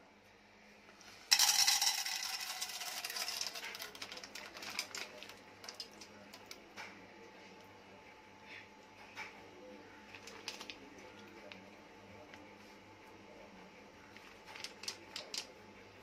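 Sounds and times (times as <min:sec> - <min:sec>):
popcorn kernels rattling in metal pot: 0:01.3 - 0:06.5, 0:14.4 - 0:15.5.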